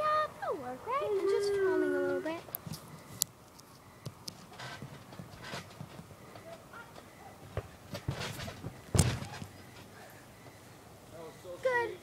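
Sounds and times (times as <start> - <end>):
knocks and rustles on trampoline: 4.3 - 10.0
thump landing on mat: 7.5 - 9.4.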